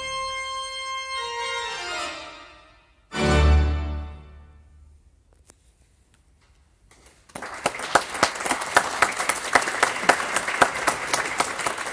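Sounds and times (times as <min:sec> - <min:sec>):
audience applause: 0:06.9 - 0:11.9.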